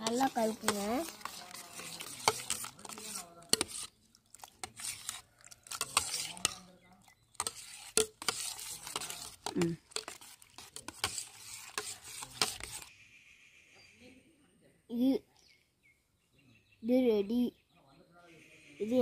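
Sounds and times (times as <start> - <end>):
wet swishing of stirring: 0.0 - 12.9.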